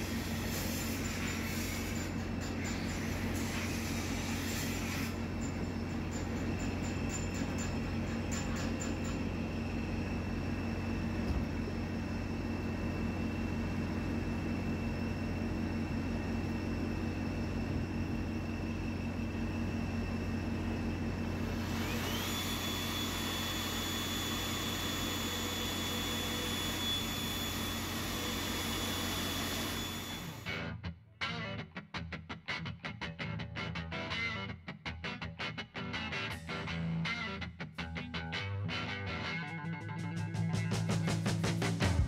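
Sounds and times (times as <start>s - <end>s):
drill motor humming: 21.3s - 30.5s.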